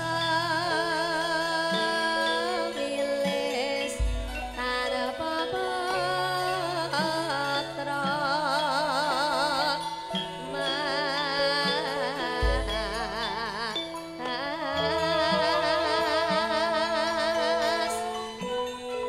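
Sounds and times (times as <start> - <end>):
wavering melodic notes with vibrato: 0.0 - 19.0
stepping bass line: 4.0 - 4.8.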